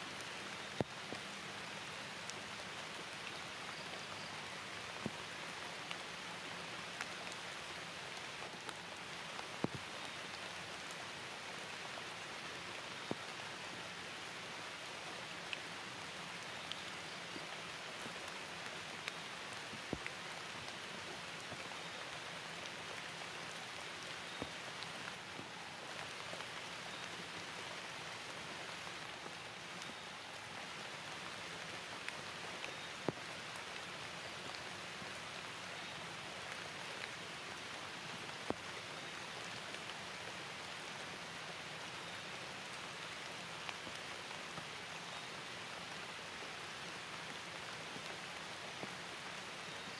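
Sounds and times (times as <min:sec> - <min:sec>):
sharp close raindrops: 0:00.0 - 0:49.9
steady rain hiss: 0:00.0 - 0:49.9.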